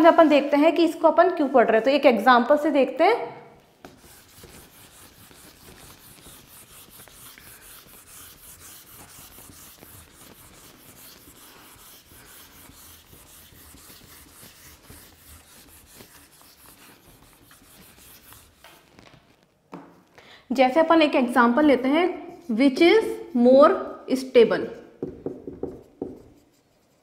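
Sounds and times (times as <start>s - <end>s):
eraser rubbing on whiteboard: 3.8s - 19.3s, 25.4s - 27.0s.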